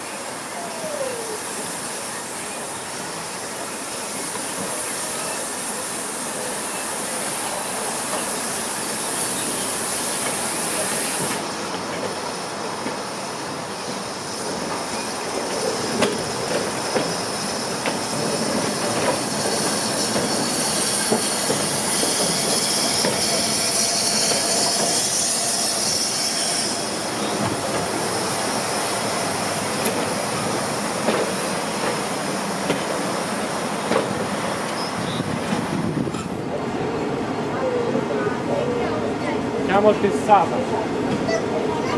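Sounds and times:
steam hissing: 0:00.3 - 0:36.1
train wheels clicking on rail joints: 0:13.8 - 0:28.1, 0:29.1 - 0:36.4
wheel squeal: 0:17.0 - 0:27.5, 0:34.7 - 0:35.4.

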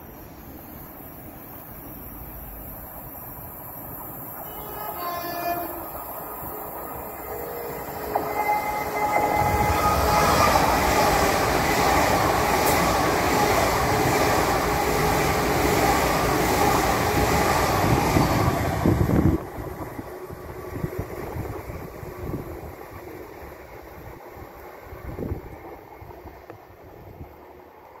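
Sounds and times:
train passing at speed: 0:00.0 - 0:28.0.

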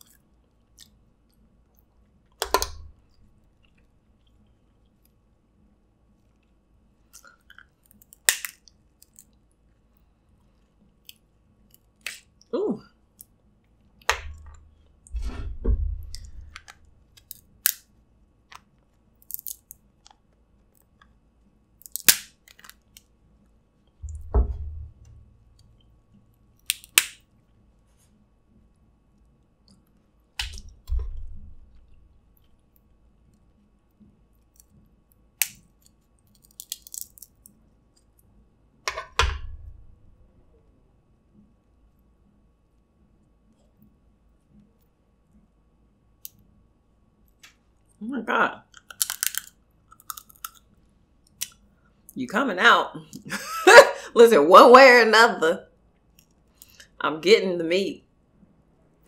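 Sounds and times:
crab shells cracking: 0:07.2 - 0:09.4, 0:16.2 - 0:17.9, 0:19.2 - 0:21.0, 0:21.7 - 0:23.1, 0:26.6 - 0:27.3, 0:35.4 - 0:37.6, 0:48.7 - 0:50.7
dull low thumps: 0:14.2 - 0:16.6, 0:24.0 - 0:25.6, 0:30.6 - 0:32.1.

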